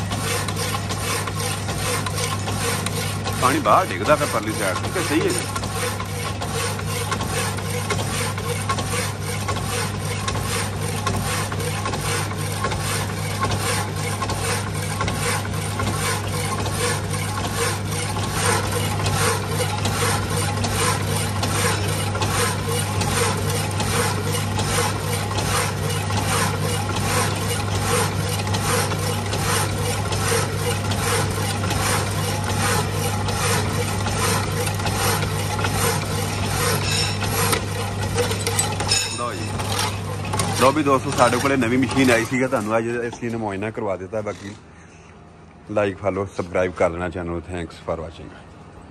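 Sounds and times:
coolant dripping: 0:00.0 - 0:38.8
hacksaw blade rasping on iron: 0:00.0 - 0:42.2
electric motor hum: 0:00.0 - 0:43.1.

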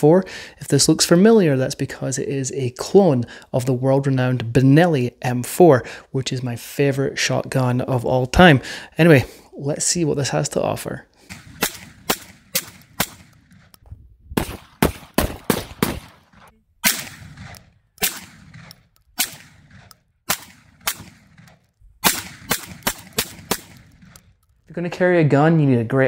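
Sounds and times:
shotgun fired rapidly: 0:11.2 - 0:13.6, 0:14.4 - 0:24.1
shotgun cycling and ejecting shell: 0:11.2 - 0:13.8, 0:14.5 - 0:24.7.

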